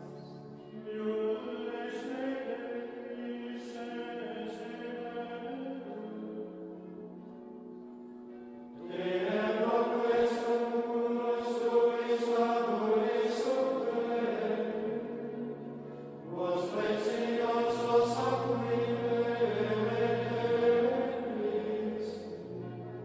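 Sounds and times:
chant-like singing: 0.0 - 6.5, 8.8 - 23.0
low drone: 14.8 - 23.0.

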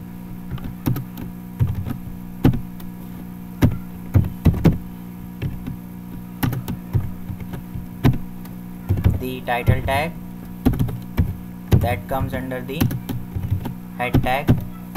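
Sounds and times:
low electrical hum: 0.0 - 14.9
keyboard keystrokes: 0.5 - 2.9, 5.4 - 10.0, 10.6 - 14.7.

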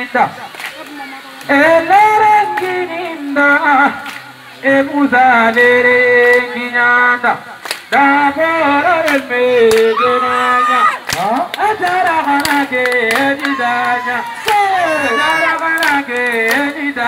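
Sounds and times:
person singing long notes: 7.9 - 17.0.

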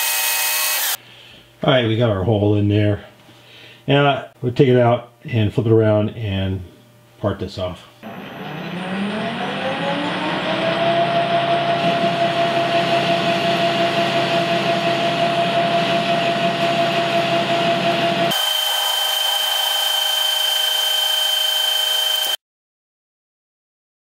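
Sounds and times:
metal lathe machining whine: 0.0 - 1.0, 8.0 - 22.4.

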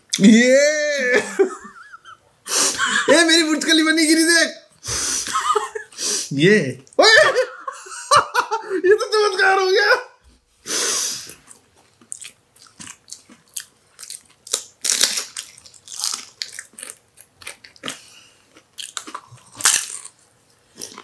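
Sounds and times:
short hissing burst: 4.8 - 5.4, 6.0 - 6.4, 10.6 - 11.3
crunchy food being chewed: 11.3 - 21.0.

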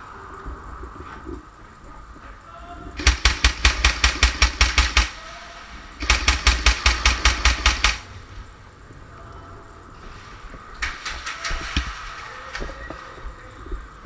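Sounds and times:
airsoft gun rapid shots: 3.0 - 5.2, 6.0 - 8.1.

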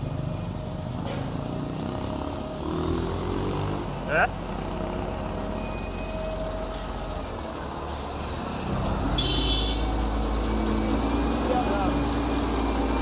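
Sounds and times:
wheel loader diesel engine rumble: 3.8 - 13.0.

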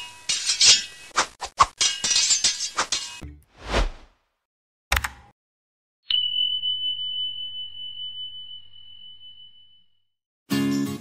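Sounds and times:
high bell ding: 6.1 - 10.0.

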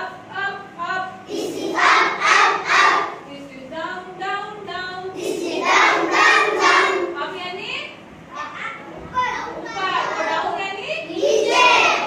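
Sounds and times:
children chanting in unison: 1.3 - 3.2, 5.2 - 7.1, 11.1 - 12.0.

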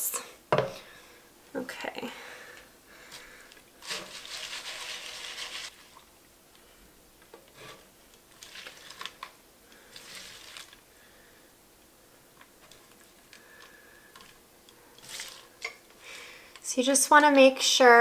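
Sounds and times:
noodles hissing in hot fat: 3.8 - 5.8.

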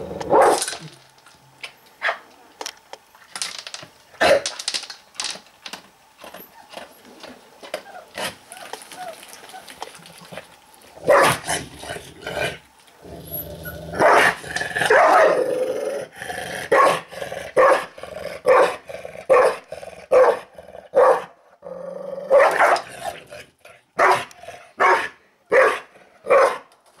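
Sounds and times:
dog growling: 10.2 - 21.0, 21.6 - 24.8
dog barking: 11.1 - 11.4, 14.0 - 15.4, 16.7 - 17.0, 17.6 - 17.9, 18.5 - 20.4, 21.0 - 21.3, 22.3 - 22.8, 24.0 - 26.7.

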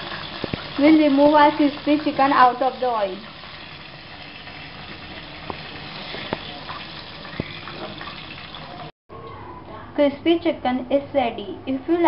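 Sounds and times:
hot oil sizzling: 0.0 - 8.9.

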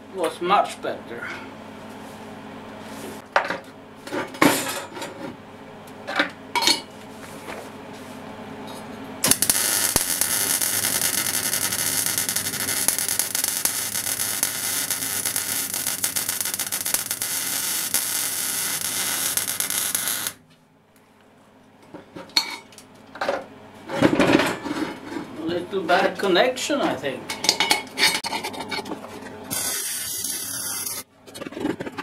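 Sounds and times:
welding arc crackling hiss: 9.2 - 20.4, 29.5 - 31.1.

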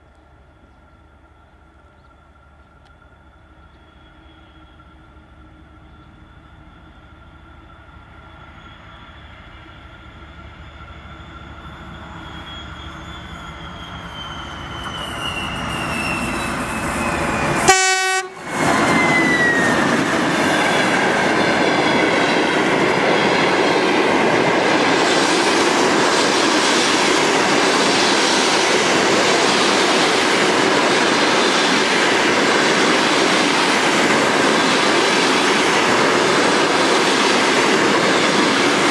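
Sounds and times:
locomotive engine whine: 0.0 - 38.9
train wheels rumbling on rails: 0.0 - 38.9
train horn blast: 17.4 - 18.5.

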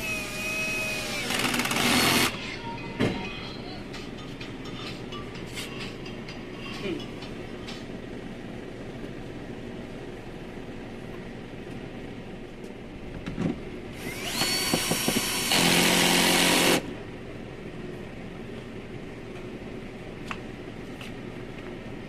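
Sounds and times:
drill motor whine: 0.0 - 2.3, 14.0 - 16.8.

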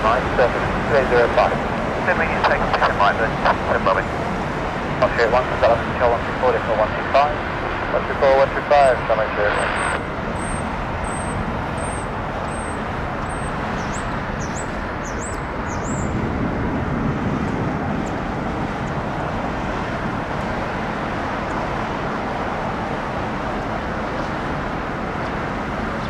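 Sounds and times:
jet engine noise: 0.0 - 26.0
small bird chirping: 10.4 - 16.1.

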